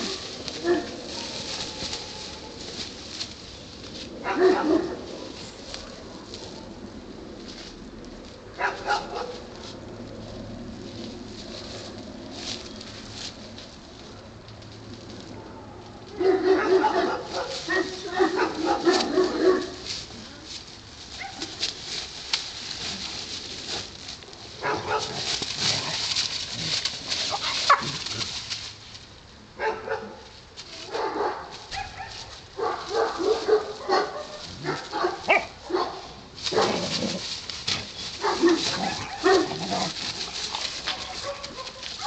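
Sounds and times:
dry leaves rustling: 0:00.0 - 0:42.0
cloth sack being pulled: 0:36.5 - 0:41.4.

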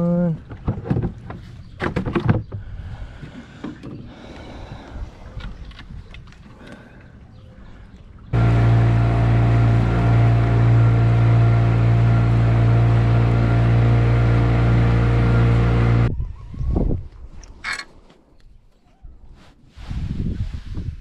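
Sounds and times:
outboard motor droning: 0:08.3 - 0:16.1.

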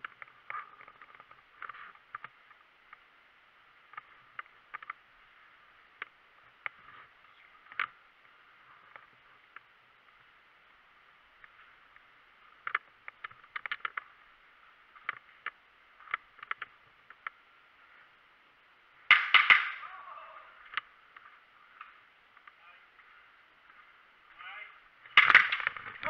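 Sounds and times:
person calling out: 0:19.8 - 0:20.6.

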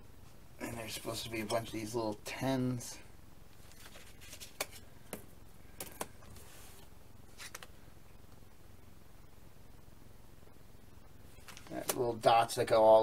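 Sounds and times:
faint room hum: 0:00.0 - 0:13.0
soft rustle: 0:03.5 - 0:07.9.

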